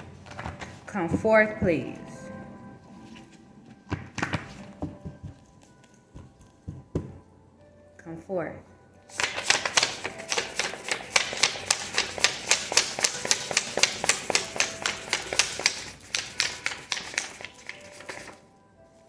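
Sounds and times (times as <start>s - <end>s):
cards being shuffled: 9.1s - 18.4s.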